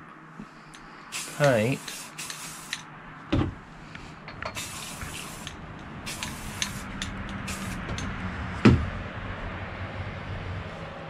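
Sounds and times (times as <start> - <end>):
spray can hissing: 1.1 - 2.8, 4.6 - 8.1
low thump: 3.3 - 3.6, 8.6 - 8.9.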